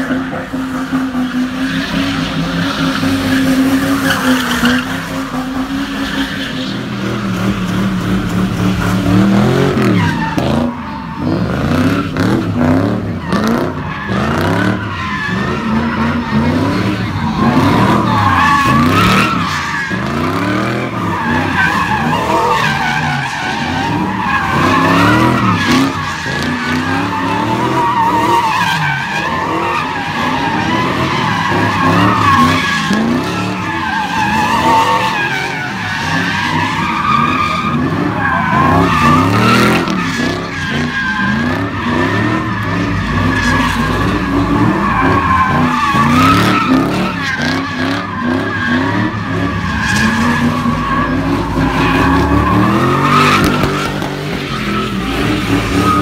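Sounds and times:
car tyres squealing: 0:00.0 - 0:56.0
engines revving: 0:00.0 - 0:56.0.

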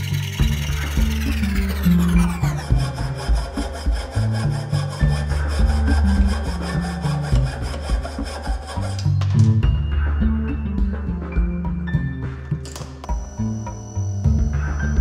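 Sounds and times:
hand saw cutting metal tube: 0:00.0 - 0:09.6
background music: 0:00.0 - 0:15.0.

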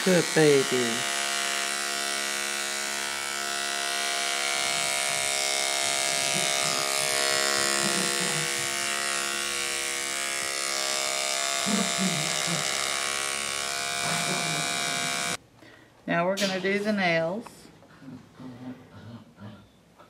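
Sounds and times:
electric clippers humming: 0:00.0 - 0:15.4.

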